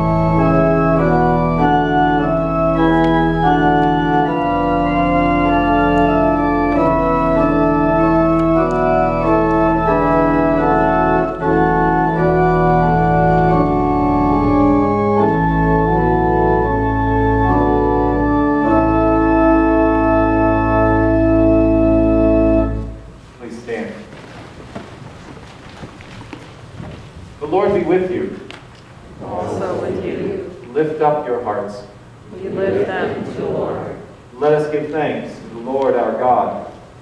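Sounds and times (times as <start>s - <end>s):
church organ chords: 0.0s - 24.0s.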